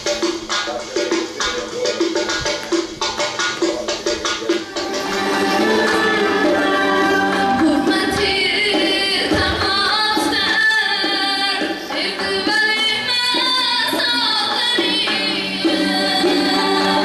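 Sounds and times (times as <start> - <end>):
instrumental accompaniment: 0.0 - 17.0
person singing: 3.8 - 17.0.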